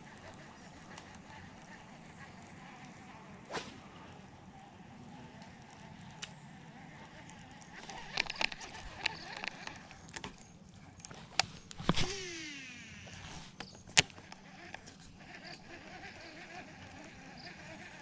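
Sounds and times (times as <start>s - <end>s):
whoosh of a cast: 3.5s - 3.9s
fishing reel clicks: 7.1s - 10.2s.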